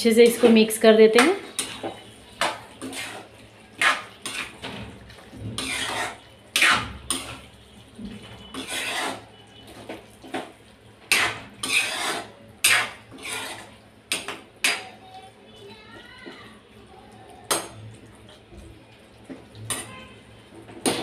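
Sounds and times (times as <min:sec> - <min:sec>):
metal spoon scraping pan: 0:00.2 - 0:07.5, 0:08.2 - 0:14.8.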